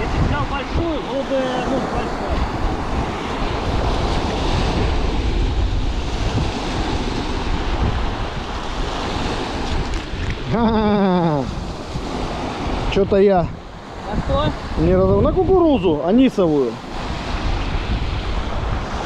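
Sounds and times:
man's voice: 0.0 - 2.6, 12.9 - 16.8
strong wind buffeting microphone: 0.0 - 19.0
waves washing on shore: 0.0 - 19.0.

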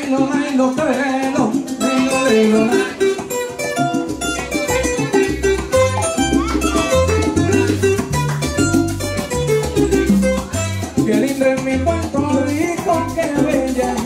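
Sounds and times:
plucked guitar lines: 1.8 - 11.9
bass line: 1.8 - 14.0.

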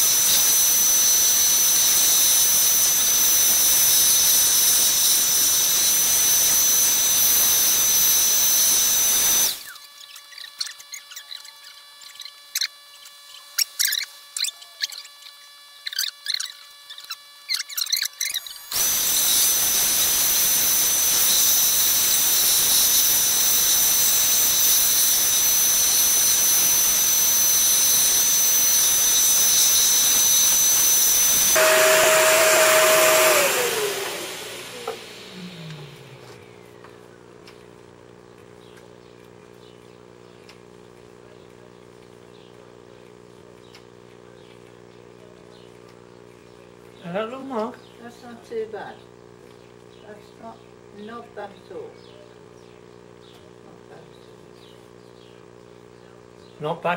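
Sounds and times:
vacuum cleaner running: 0.0 - 10.0, 18.2 - 38.0.

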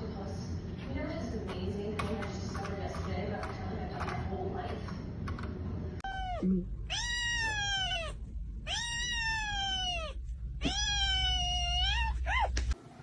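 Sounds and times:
kitten meowing: 6.0 - 12.6.

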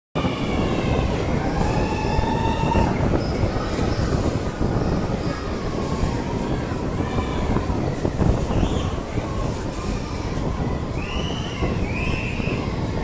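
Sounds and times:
train wheels rumbling on rail: 0.2 - 13.0.

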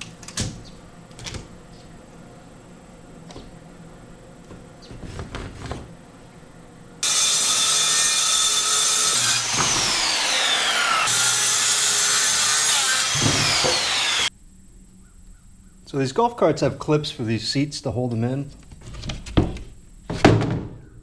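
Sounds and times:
circular saw cutting board: 7.0 - 14.3.

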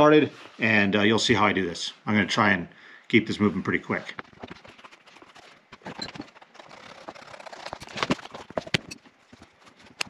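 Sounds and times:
leather being handled: 4.1 - 10.0.

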